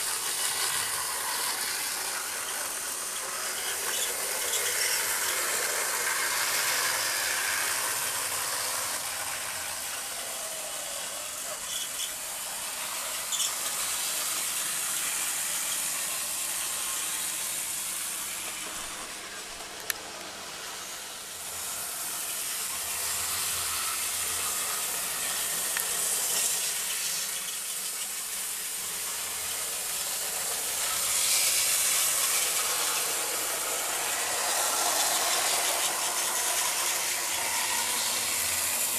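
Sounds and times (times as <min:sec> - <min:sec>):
model train clicks: 0:00.0 - 0:12.4, 0:17.2 - 0:20.4, 0:23.7 - 0:38.9
model train running on track: 0:00.0 - 0:38.9.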